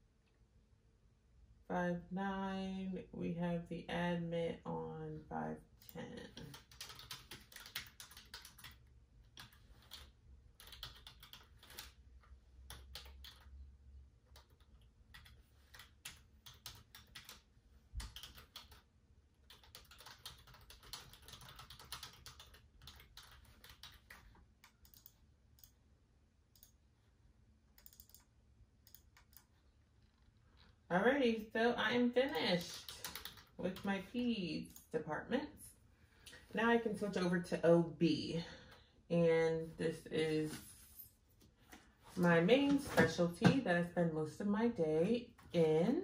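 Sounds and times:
typing on computer keyboard: 5.8 - 13.5, 14.2 - 25.8, 27.8 - 29.6, 32.6 - 33.9.

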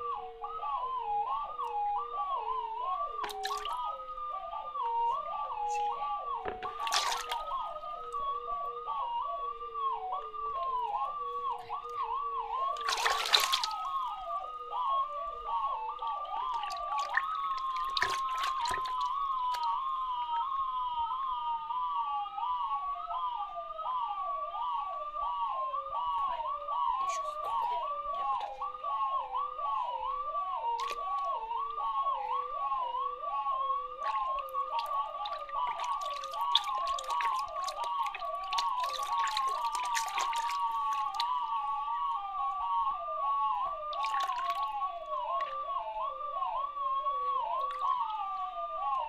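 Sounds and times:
water splashing: 3.2 - 3.9, 6.4 - 7.6, 12.7 - 14.1, 16.0 - 19.7, 34.0 - 41.4, 43.9 - 44.7
swooping electronic tones: 24.7 - 49.0.

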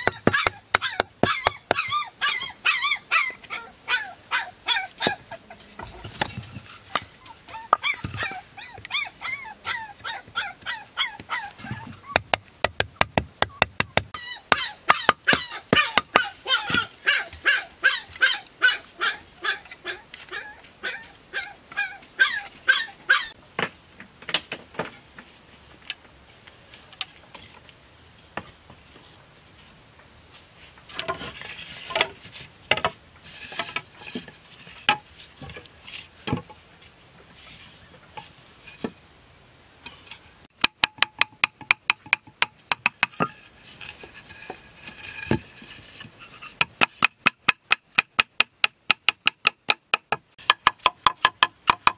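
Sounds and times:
bamboo being chopped: 0.0 - 1.9, 12.0 - 16.3, 40.6 - 43.3, 46.6 - 51.9
puppy yelping: 0.0 - 5.5, 7.2 - 12.2, 14.1 - 23.4.

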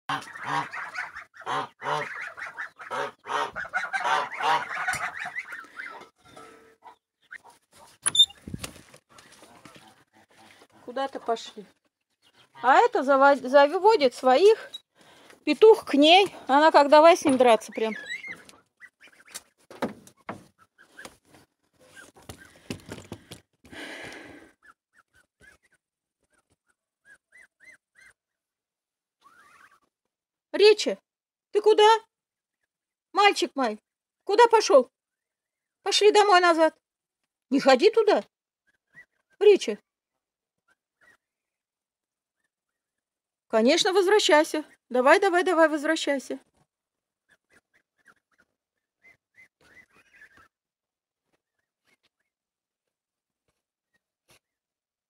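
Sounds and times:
geese honking: 0.1 - 8.0, 17.6 - 19.6
high bird chirps: 3.6 - 7.5, 8.1 - 8.4, 17.5 - 19.4, 47.5 - 50.5.

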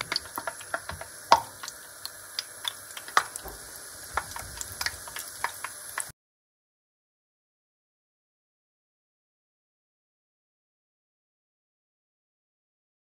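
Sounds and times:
batter frying in hot oil: 0.0 - 6.1.

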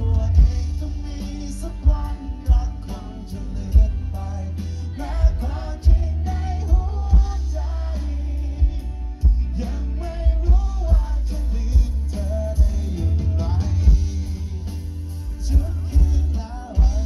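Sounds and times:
live band playing: 0.0 - 17.0
person singing: 0.0 - 17.0.

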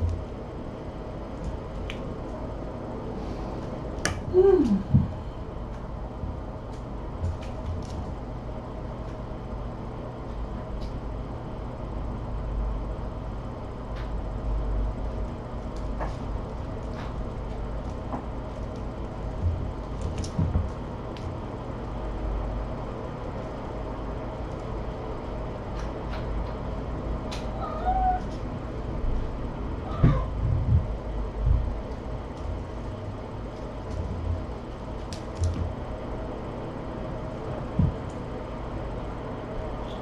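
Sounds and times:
low room hum: 0.0 - 40.0
kitten thumps and clicks: 35.1 - 35.8.

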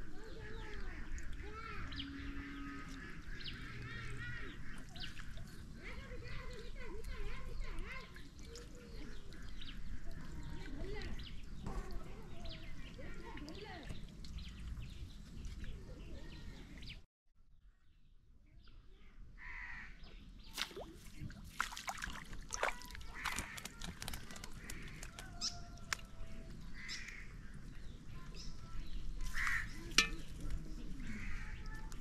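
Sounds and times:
crows cawing: 19.4 - 20.0, 23.0 - 25.4, 26.8 - 27.4, 29.3 - 29.8, 31.1 - 31.6.

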